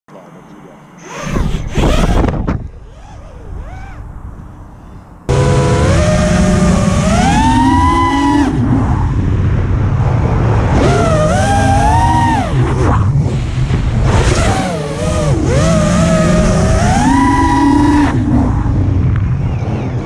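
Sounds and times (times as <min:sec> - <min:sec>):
quadcopter motors whining: 0:00.9 - 0:09.2, 0:10.7 - 0:18.4.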